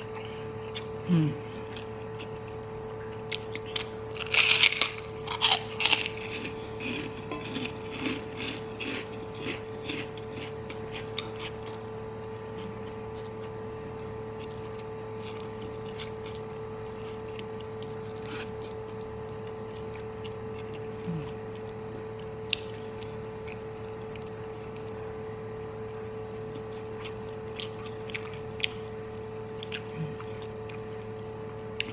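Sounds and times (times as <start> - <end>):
steady hum: 0.0 - 31.9
chewing with mouth smacks: 26.5 - 28.9, 29.6 - 31.0.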